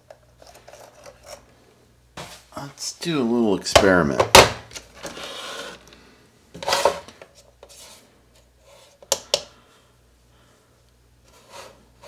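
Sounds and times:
plastic scale scraping on wood: 5.1s - 5.8s.

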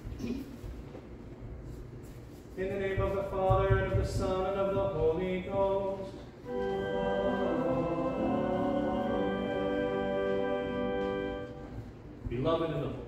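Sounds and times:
church singing: 4.4s - 12.1s
long held chord: 6.4s - 12.2s.

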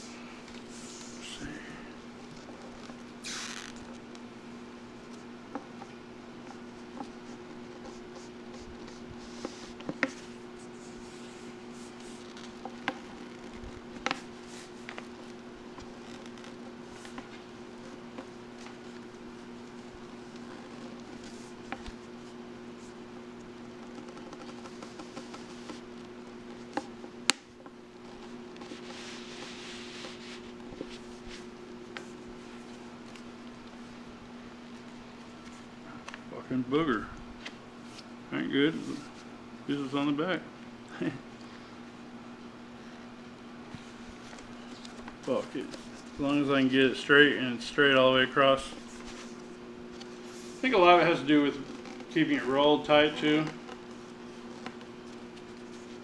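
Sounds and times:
paper rubbing and scraping: 0.0s - 1.5s, 6.5s - 23.0s, 23.8s - 27.0s, 28.0s - 33.2s, 48.6s - 56.0s
steady low hum: 0.0s - 56.0s.

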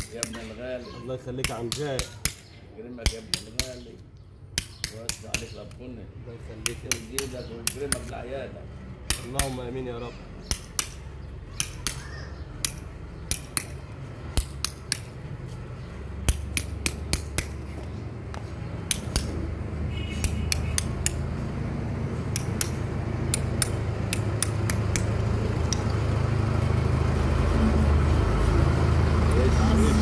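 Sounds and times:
low engine-like hum: 7.4s - 30.0s
hammer tapping metal blade: 10.4s - 11.0s, 11.6s - 13.8s, 14.4s - 15.2s, 18.9s - 19.4s, 20.2s - 21.2s, 22.3s - 25.9s.

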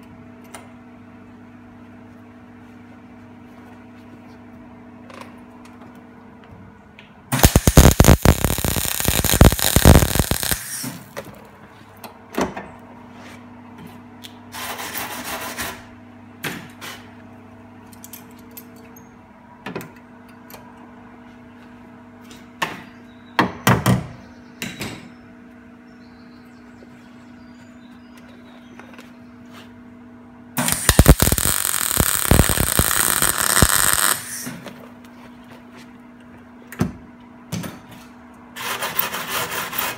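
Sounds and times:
steady low hum: 0.0s - 14.1s, 25.4s - 37.5s
welder tack bursts: 7.3s - 11.0s, 30.6s - 34.5s
welding arc crackling: 7.3s - 11.1s, 30.6s - 34.5s.

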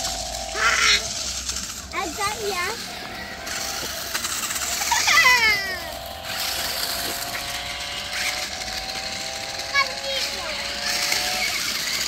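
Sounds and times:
toy car electric motors whining: 0.0s - 12.0s
child squealing: 0.5s - 1.1s, 4.8s - 6.0s.

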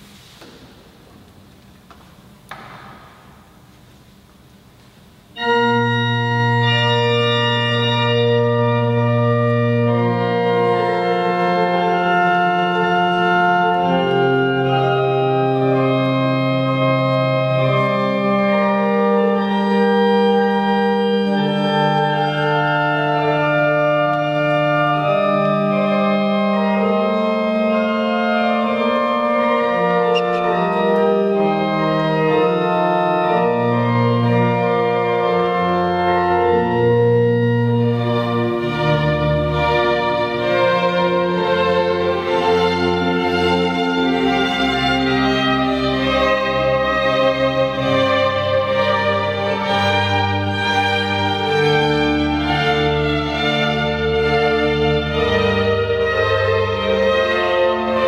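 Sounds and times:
room hiss: 0.0s - 8.0s
organ playing slow chords: 5.3s - 58.0s.

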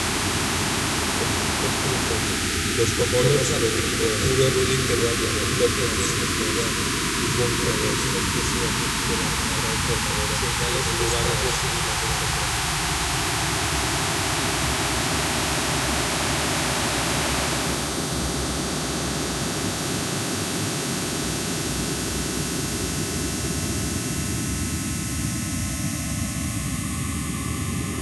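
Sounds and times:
thin steady tones: 0.0s - 18.0s
noise music hiss and static: 0.0s - 28.0s.

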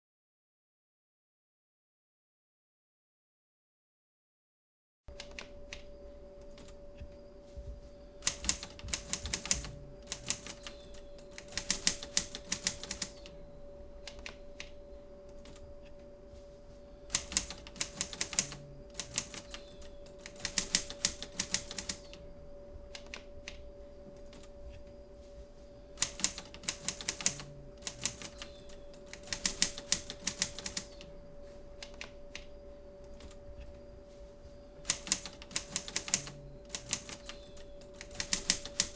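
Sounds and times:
steady low hum: 5.1s - 38.9s
typewriter keys clacking: 8.2s - 13.3s, 17.1s - 22.2s, 26.0s - 31.1s, 34.8s - 38.9s.

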